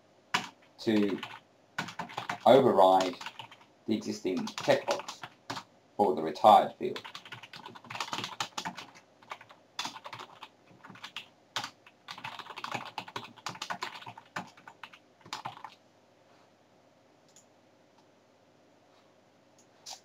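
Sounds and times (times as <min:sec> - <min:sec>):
computer keyboard typing: 0:00.3 - 0:05.7, 0:06.9 - 0:15.8.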